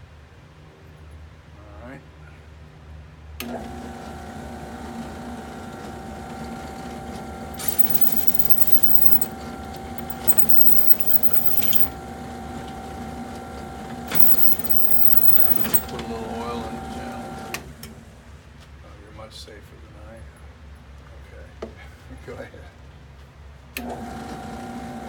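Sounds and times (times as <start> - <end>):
drill press motor humming: 7.5 - 12.0.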